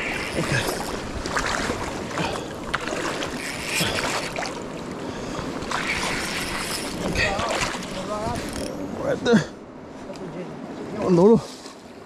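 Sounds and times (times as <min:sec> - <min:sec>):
river water sloshing and splashing: 0:00.0 - 0:08.9, 0:09.8 - 0:12.0
spinning reel cranking: 0:03.4 - 0:03.9, 0:05.8 - 0:07.1.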